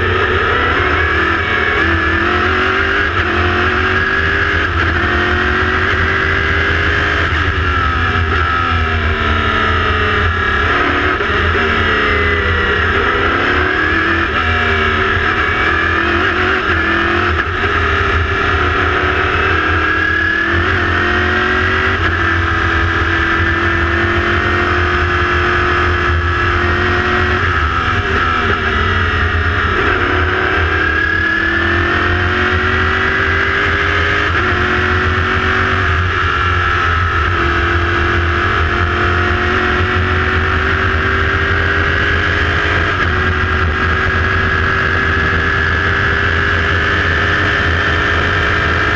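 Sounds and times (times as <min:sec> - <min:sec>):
race car engine revving: 0:00.0 - 0:48.9.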